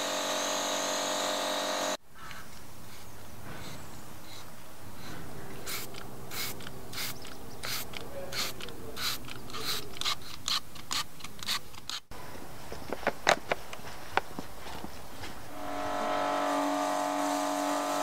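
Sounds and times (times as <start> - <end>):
spray bottle hissing sprays: 2.9 - 11.6.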